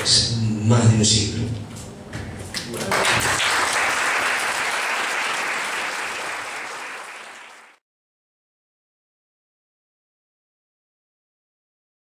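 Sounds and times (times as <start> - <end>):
audience applauding: 2.6 - 7.8.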